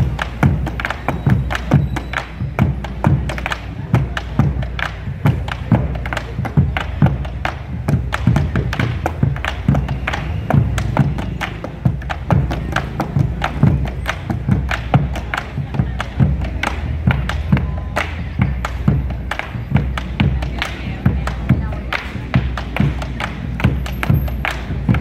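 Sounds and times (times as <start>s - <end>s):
street music with heavy percussion: 0.0s - 25.0s.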